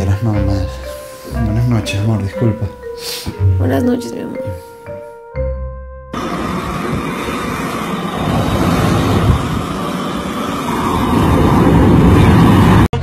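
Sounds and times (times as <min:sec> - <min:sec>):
flamethrower roaring: 0:06.2 - 0:13.0.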